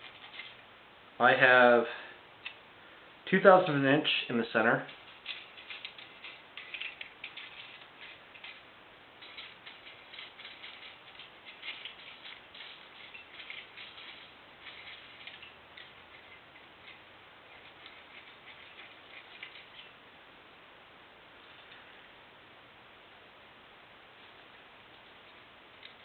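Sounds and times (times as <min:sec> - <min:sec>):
feeler gauge ticking and scraping: 0:03.4 - 0:20.0.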